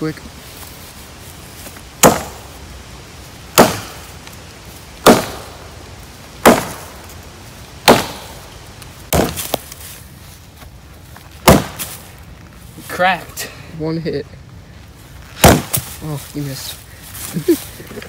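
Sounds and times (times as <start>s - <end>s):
axe chopping into log: 2.0s - 2.5s, 3.5s - 4.1s, 5.0s - 5.6s, 6.4s - 7.0s, 7.8s - 8.4s, 9.1s - 9.7s, 11.4s - 12.0s, 15.4s - 15.9s.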